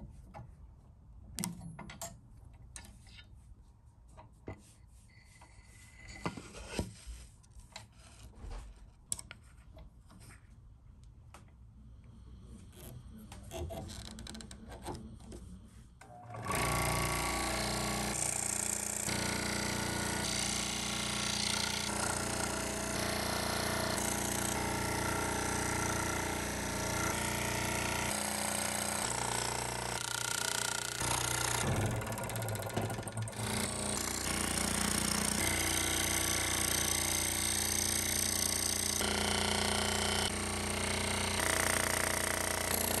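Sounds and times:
scroll saw cutting wood: 16.4 - 43.0.

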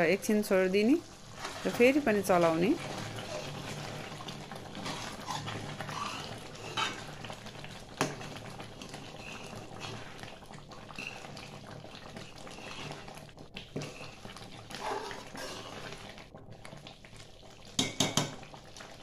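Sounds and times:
soft bubbling: 1.0 - 19.0
metal ladle scraping wok: 1.3 - 7.2, 8.9 - 10.2, 13.8 - 16.0.

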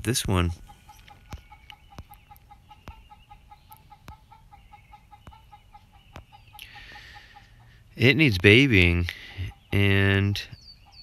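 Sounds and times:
short clucking calls: 0.5 - 7.8.

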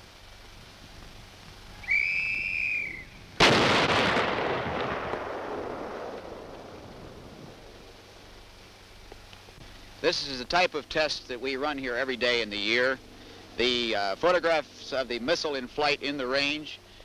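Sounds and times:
warning whistle blast: 1.8 - 3.2
tank gun firing: 3.4 - 6.7.

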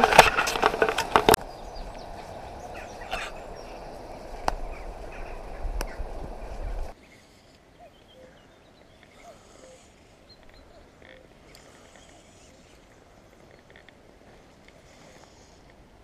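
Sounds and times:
birds calling: 0.0 - 15.7
low rumble on microphone: 1.1 - 7.0.

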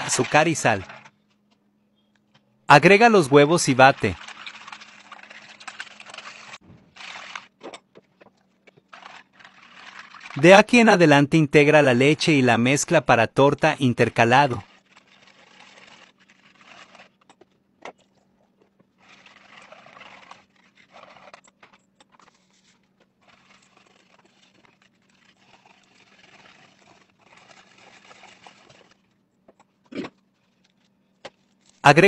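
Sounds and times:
whisk swishing and scraping: 3.0 - 7.5, 8.9 - 10.6, 14.2 - 17.3, 19.0 - 29.0.

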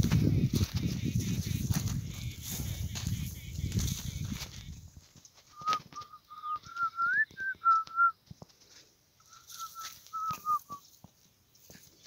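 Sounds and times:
person whistling a tune: 5.5 - 8.2, 9.3 - 10.8.

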